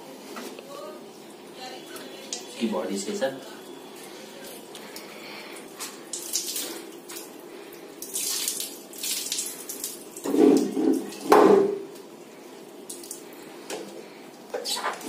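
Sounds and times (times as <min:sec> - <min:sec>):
water splattering on tiled floor: 0:03.3 - 0:15.0.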